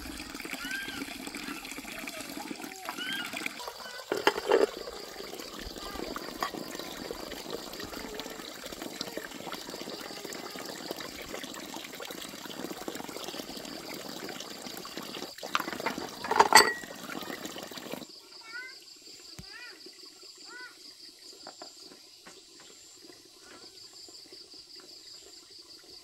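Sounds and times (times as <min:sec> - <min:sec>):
water pouring: 0:00.0 - 0:26.0.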